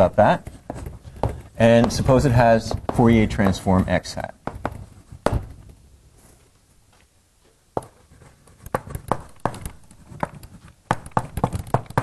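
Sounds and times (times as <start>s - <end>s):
taps and clicks writing on board: 0.4s - 3.6s, 7.8s - 12.0s.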